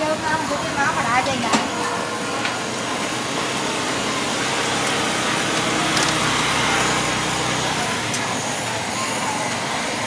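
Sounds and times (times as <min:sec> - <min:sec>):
busy market din: 0:00.0 - 0:10.0
small engine humming: 0:02.9 - 0:10.0.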